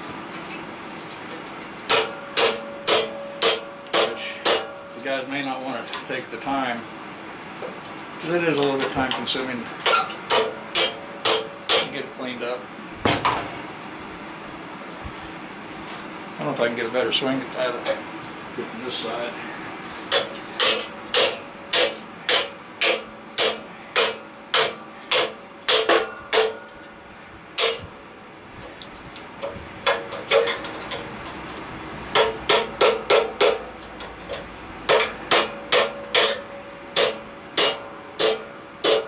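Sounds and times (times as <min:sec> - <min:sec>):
hammer striking metal: 0:01.9 - 0:04.8, 0:09.8 - 0:12.0, 0:20.1 - 0:26.9, 0:27.6 - 0:27.9, 0:32.1 - 0:33.6, 0:34.9 - 0:39.0.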